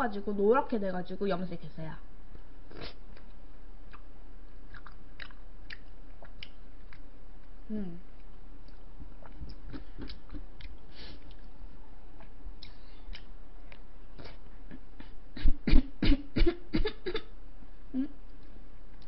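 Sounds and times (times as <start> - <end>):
mouth and throat noises: 2.7 - 3.3, 4.7 - 17.2
chewing: 4.7 - 14.4.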